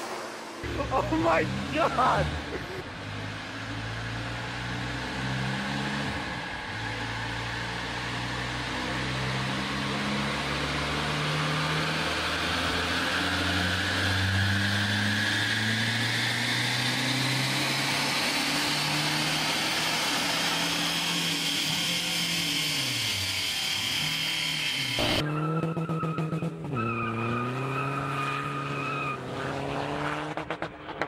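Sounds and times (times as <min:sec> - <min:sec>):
diesel engine revving high: 0:00.0 - 0:30.9.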